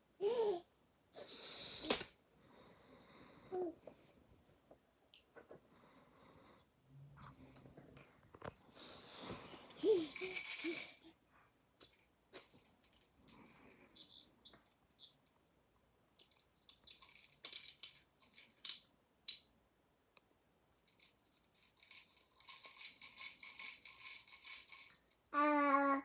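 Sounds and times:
plastic baby rattle shaking: 9.8 - 11.2, 16.2 - 18.9, 20.9 - 25.2.

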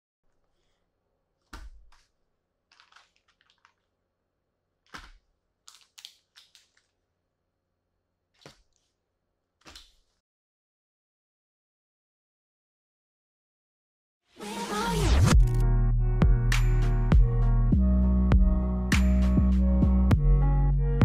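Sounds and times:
plastic bags crinkling: 2.6 - 4.0, 4.8 - 7.0.

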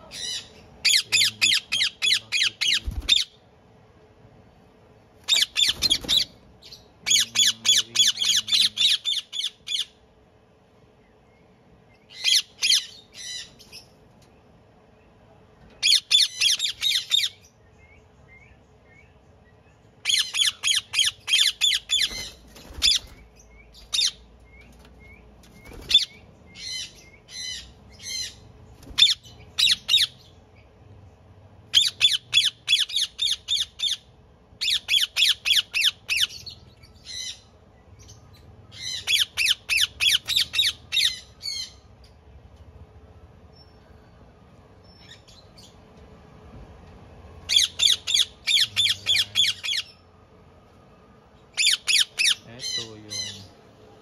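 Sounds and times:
parakeets squawking: 0.0 - 3.4, 5.2 - 10.0, 12.1 - 13.9, 15.8 - 17.5, 20.0 - 24.4, 25.7 - 30.4, 31.7 - 41.9, 47.4 - 50.0, 51.5 - 53.6.

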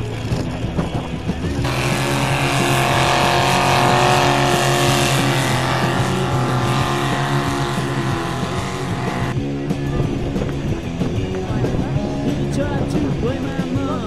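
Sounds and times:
tractor engine under load: 1.6 - 9.4.

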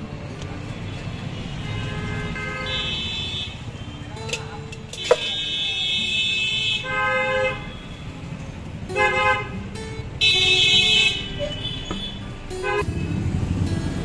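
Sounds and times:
low traffic rumble: 0.0 - 14.0
vehicle horns honking: 0.8 - 8.2, 8.9 - 13.2.

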